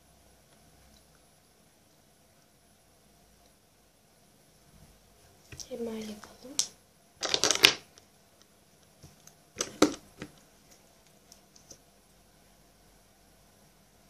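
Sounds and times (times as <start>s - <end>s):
plastic containers clicking: 7.2s - 7.8s, 9.6s - 10.4s.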